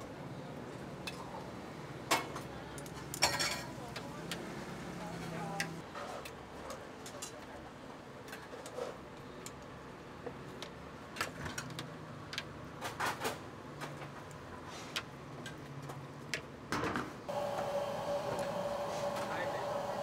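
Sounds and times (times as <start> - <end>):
steady hum: 17.3 - 20.0.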